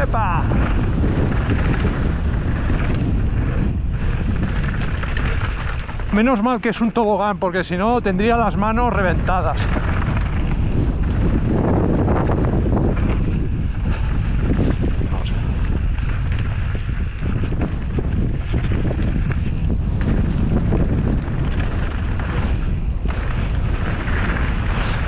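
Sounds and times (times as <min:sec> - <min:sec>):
bike clicks and rattles: 0:00.0 - 0:25.0
tyres rumbling on dirt trail: 0:00.0 - 0:25.0
wind buffeting microphone: 0:00.0 - 0:25.0.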